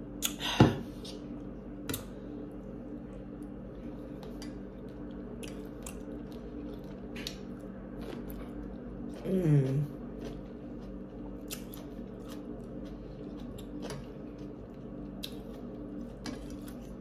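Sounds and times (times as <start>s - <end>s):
low hum: 0.0s - 17.0s
chewing and mouth sounds: 4.2s - 17.0s.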